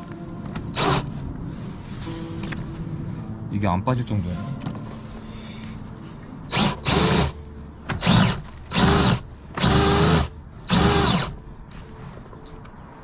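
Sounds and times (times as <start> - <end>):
cordless drill whirring in bursts: 6.5 - 7.3, 8.0 - 11.3.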